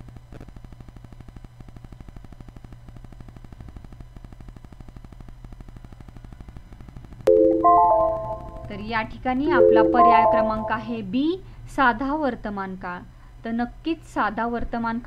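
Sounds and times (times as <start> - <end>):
low hum: 7.3 - 11.1.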